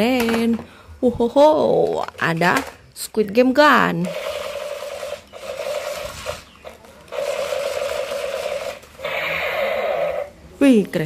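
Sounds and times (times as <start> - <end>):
toy machine gun rattling: 4.0 - 6.4, 7.0 - 9.1.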